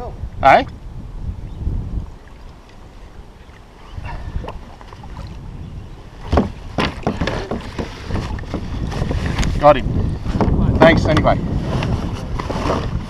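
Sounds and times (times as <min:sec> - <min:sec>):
water around kayak: 0:00.0 - 0:13.0
wind rumble on microphone: 0:00.0 - 0:13.0
knocks and splashes: 0:04.1 - 0:05.5, 0:06.1 - 0:09.6.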